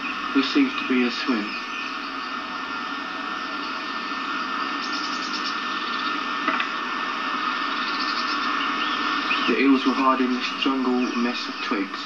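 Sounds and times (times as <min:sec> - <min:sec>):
videotape hiss and hum: 0:00.0 - 0:12.0.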